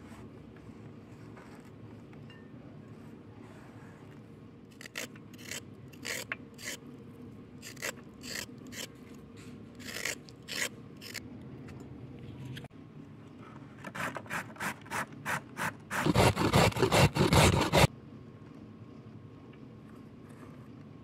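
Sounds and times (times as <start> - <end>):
knife scraping carrot: 4.8 - 6.8, 7.6 - 9.0, 9.8 - 11.2, 13.9 - 17.9.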